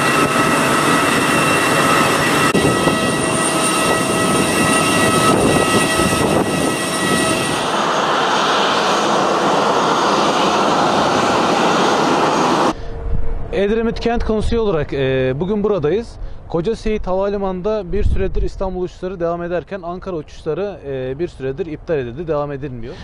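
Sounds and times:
jet airliner rush: 0.0 - 13.8
jet engine whining tones: 0.0 - 14.3.

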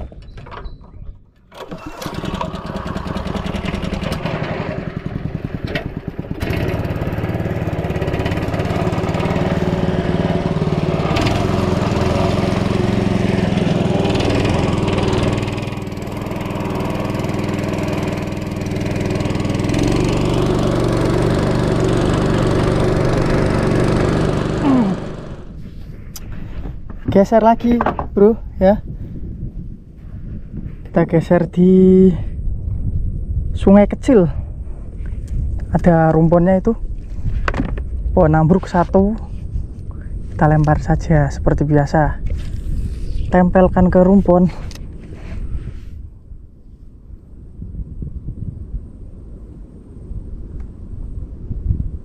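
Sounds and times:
boat motor engine running: 1.6 - 25.6.

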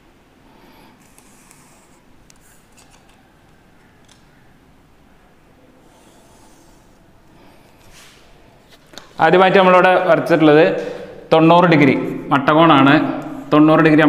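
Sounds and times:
chalk scraping on blackboard: 5.8 - 7.0.

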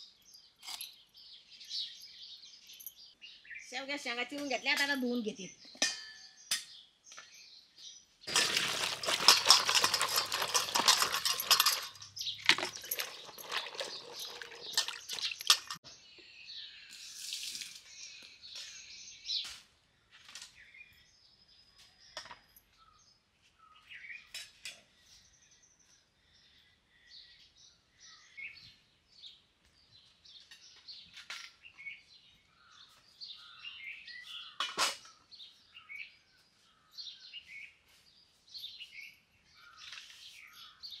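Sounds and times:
birds chirping: 0.0 - 17.0, 17.7 - 41.0
metallic clink: 8.3 - 15.8
water splashing in steel bowl: 8.3 - 15.8.

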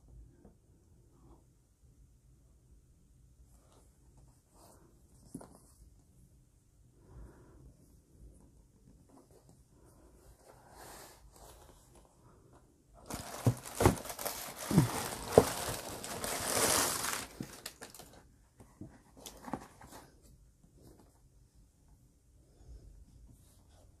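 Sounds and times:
tissue paper rustling: 13.0 - 18.2.

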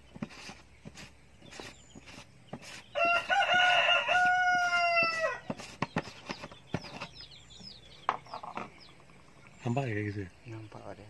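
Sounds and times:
rooster crowing: 2.9 - 5.4.

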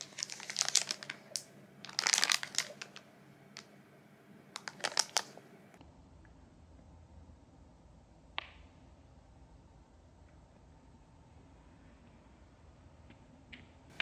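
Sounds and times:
plastic packaging crinkling: 0.0 - 3.7, 4.5 - 5.4.

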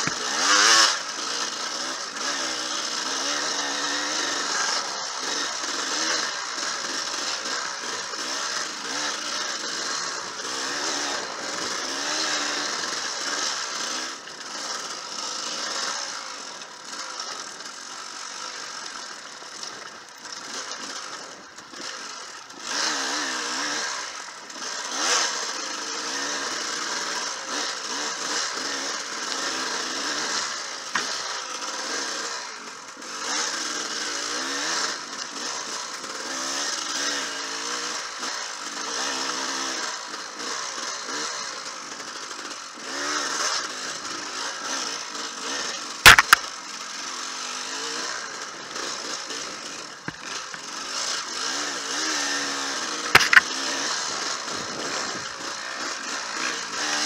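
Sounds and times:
dirt bike engine revving: 0.0 - 57.0
sharp knocks: 46.1 - 46.4.

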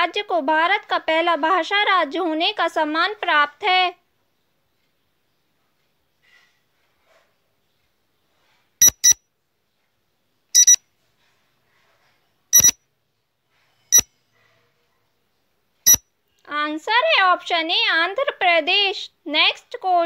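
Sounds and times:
short high electronic beeps: 8.8 - 9.2, 10.6 - 10.8, 12.6 - 12.8.

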